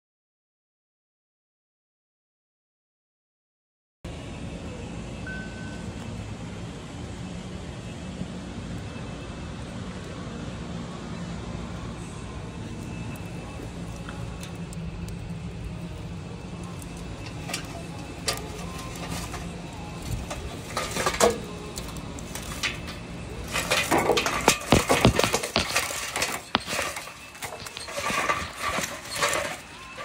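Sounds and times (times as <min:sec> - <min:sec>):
charcoal clattering against metal: 0:16.9 - 0:30.0.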